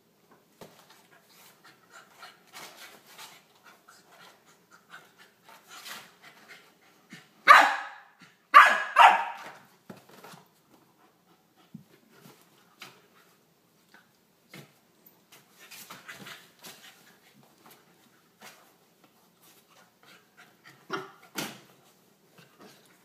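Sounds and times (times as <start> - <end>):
puppy barking: 7.5 - 9.6.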